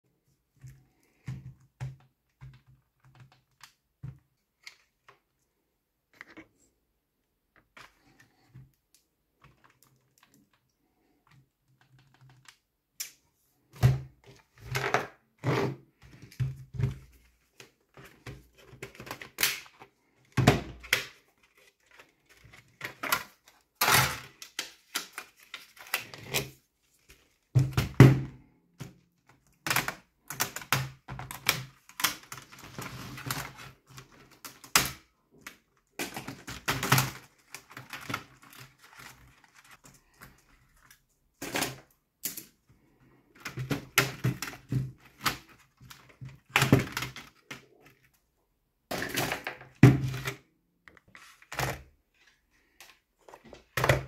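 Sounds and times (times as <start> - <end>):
plastic clicks and snaps: 11.3 - 13.2.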